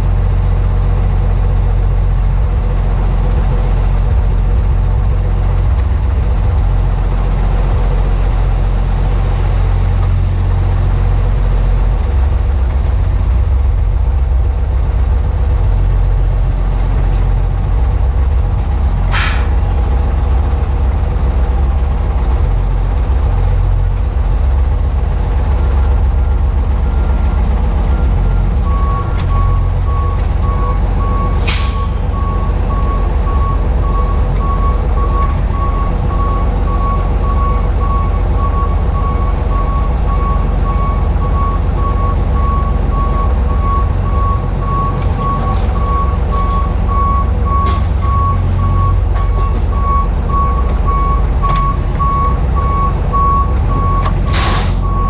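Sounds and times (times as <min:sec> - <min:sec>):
truck engine rumbling: 0:00.0 - 0:55.0
short hiss: 0:19.1 - 0:19.5, 0:31.4 - 0:32.0, 0:54.3 - 0:54.8
reversing beeps: 0:26.2 - 0:55.0.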